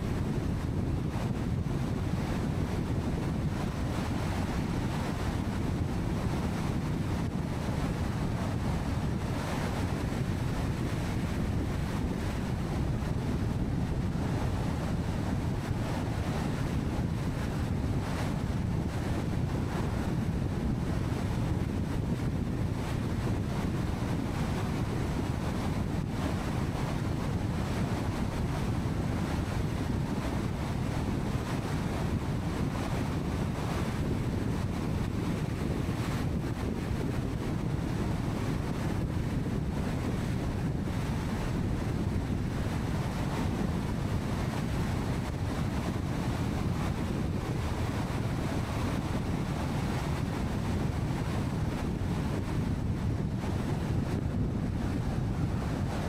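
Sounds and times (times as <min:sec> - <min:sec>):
car road and wind noise: 0:00.0 - 0:56.0.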